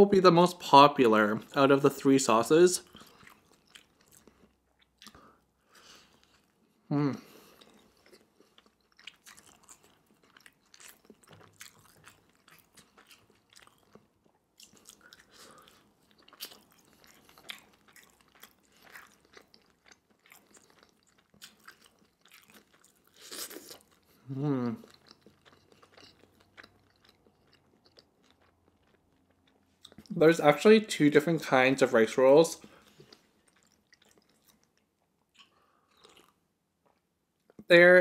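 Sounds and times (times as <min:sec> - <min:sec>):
chewing with wet mouth clicks: 0:02.8 - 0:05.3, 0:07.5 - 0:24.2, 0:24.8 - 0:30.2, 0:32.6 - 0:37.6
person humming: 0:24.3 - 0:24.8.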